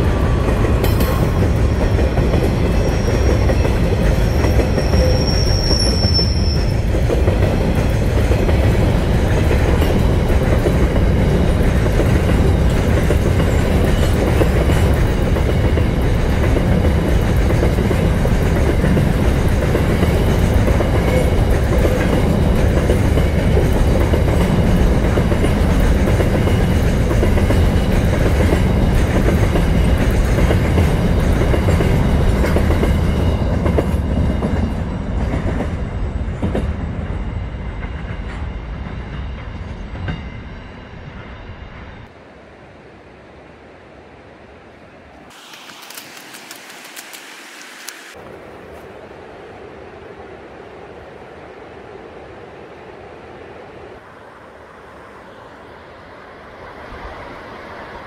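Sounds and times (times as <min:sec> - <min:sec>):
freight train rolling past: 0:00.0 - 0:58.0
high wheel squeal: 0:02.7 - 0:06.9.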